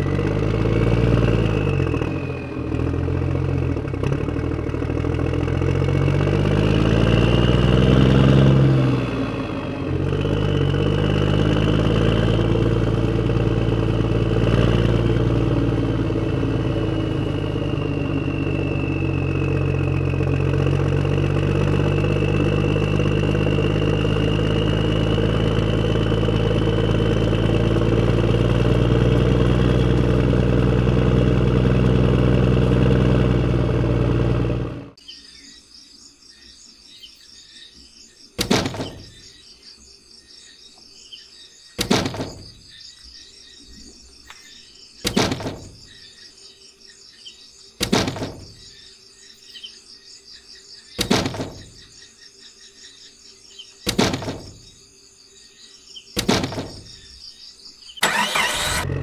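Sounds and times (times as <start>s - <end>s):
tractor engine running: 0.0s - 35.0s, 38.4s - 39.4s, 41.8s - 46.2s, 47.8s - 48.9s, 50.9s - 52.0s, 53.8s - 54.8s, 56.2s - 57.2s, 58.0s - 59.0s
birds chirping: 35.0s - 58.8s.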